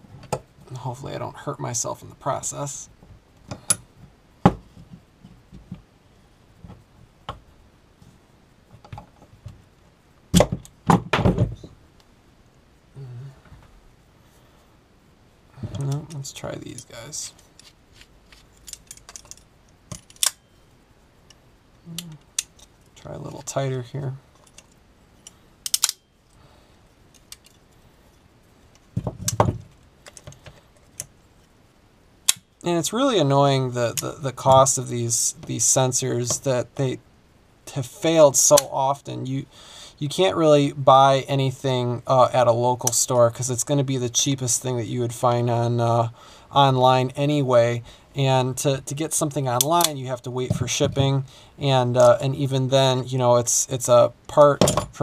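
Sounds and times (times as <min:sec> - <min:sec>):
locking pliers clicking on metal: 0:24.4 - 0:26.0
metal clamp clicks and knocks: 0:25.7 - 0:26.0.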